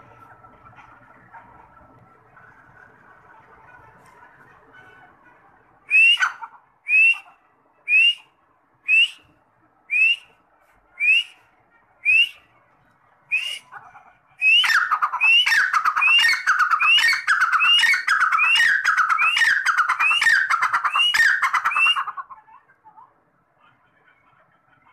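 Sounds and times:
francolin calling: 0:14.4 - 0:22.2.

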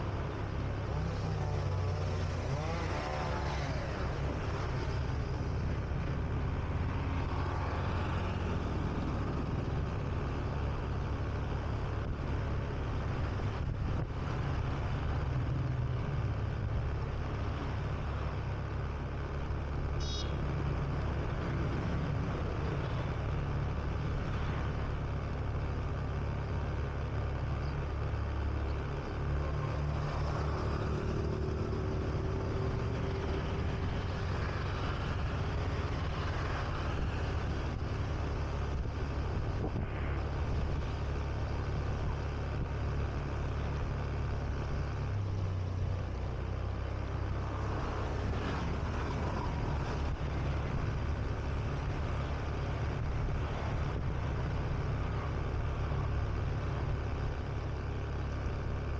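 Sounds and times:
road noise: 0:00.0 - 0:58.9.

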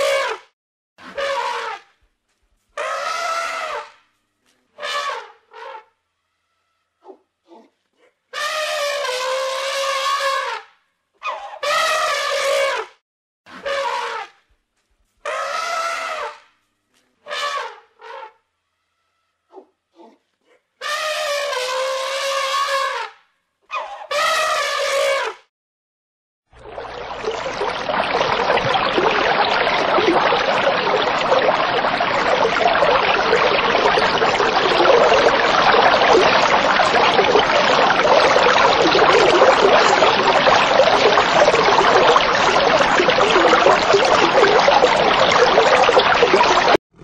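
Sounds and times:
bubbling splashing water: 0:26.5 - 0:46.8.

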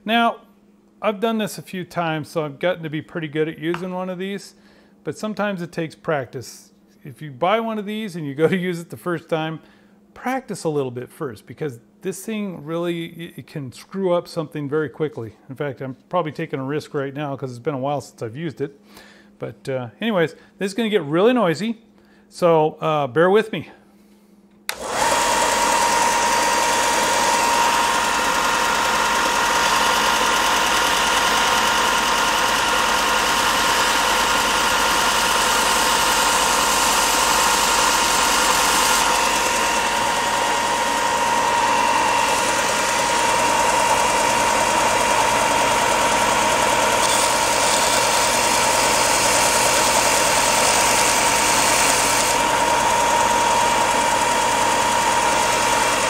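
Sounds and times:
belt sander running: 0:24.7 - 0:56.0
wood sanding hiss: 0:48.9 - 0:52.3.

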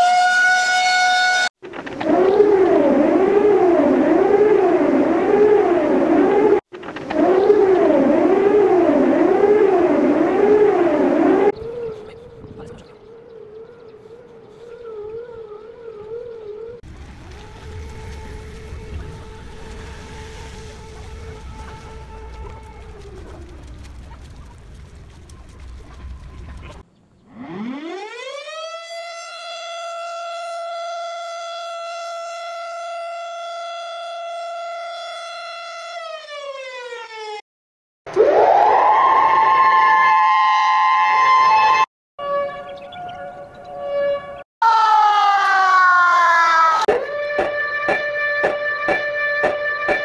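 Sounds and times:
sped-up siren wailing: 0:00.0 - 0:37.4, 0:38.1 - 0:50.0
low rumble: 0:16.9 - 0:26.8.

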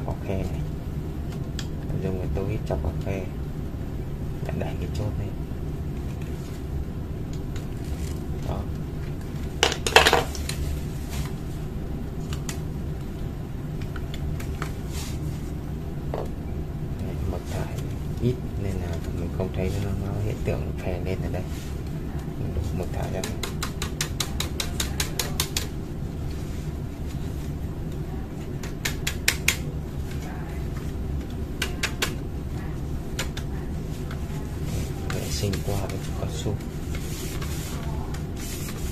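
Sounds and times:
steady low hum: 0:00.0 - 0:38.9.

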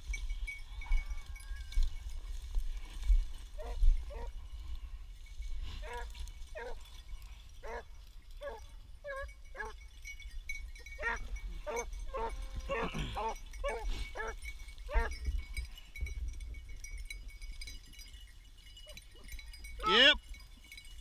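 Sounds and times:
distant dogs baying: 0:03.6 - 0:04.5, 0:05.8 - 0:09.9, 0:10.8 - 0:15.2.

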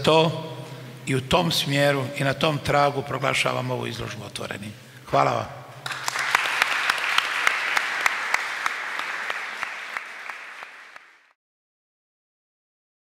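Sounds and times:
single person clapping: 0:05.8 - 0:11.2
audience applauding: 0:05.8 - 0:11.3.

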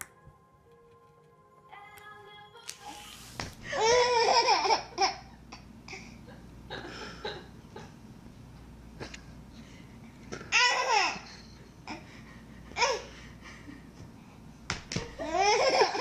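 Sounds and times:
baby laughing: 0:03.7 - 0:05.4, 0:10.5 - 0:12.0, 0:15.2 - 0:16.0.

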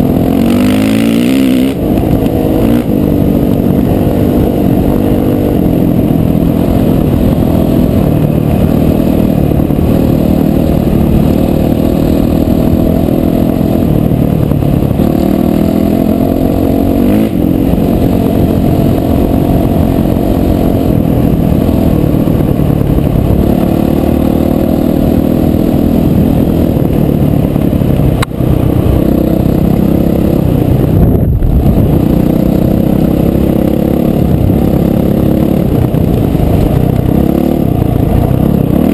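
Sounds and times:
dirt bike engine: 0:00.0 - 0:38.9.

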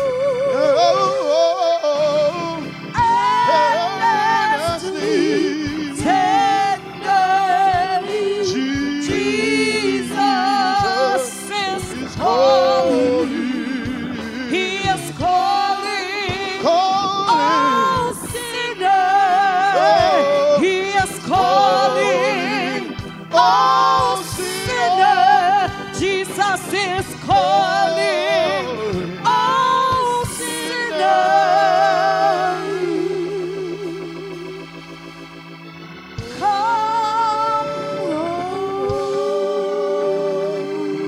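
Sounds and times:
women singing a hymn: 0:00.0 - 0:34.8, 0:36.2 - 0:41.0
organ chords: 0:00.0 - 0:41.0.

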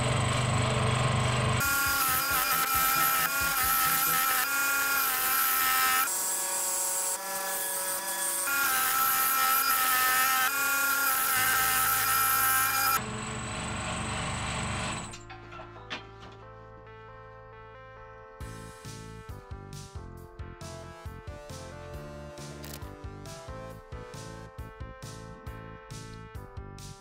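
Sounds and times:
low hum: 0:00.0 - 0:01.6
scroll saw cutting wood: 0:00.4 - 0:13.0
music: 0:01.6 - 0:06.4, 0:15.1 - 0:27.0.

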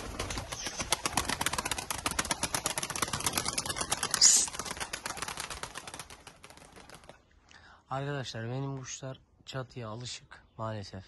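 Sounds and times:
pigeon wings flapping: 0:00.0 - 0:07.3.

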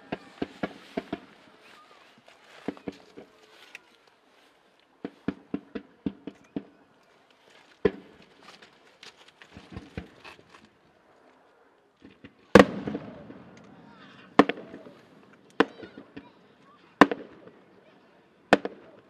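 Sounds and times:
fireworks bangs: 0:00.0 - 0:03.8, 0:05.0 - 0:06.9, 0:07.8 - 0:08.5, 0:12.0 - 0:17.7, 0:18.5 - 0:19.0
small firework pops: 0:00.0 - 0:04.2, 0:04.9 - 0:10.5, 0:14.4 - 0:17.6, 0:18.5 - 0:19.0.

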